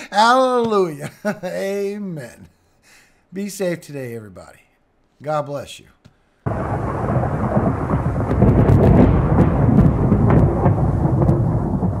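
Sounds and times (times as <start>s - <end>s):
rolling thunder: 6.5s - 12.0s
sharp thunder crackles: 6.5s - 12.0s
steady rain: 6.5s - 12.0s.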